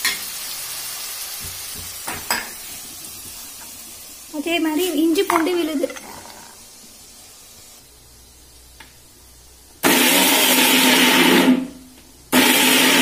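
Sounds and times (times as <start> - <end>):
mixer grinder grinding: 12.4 - 13.0.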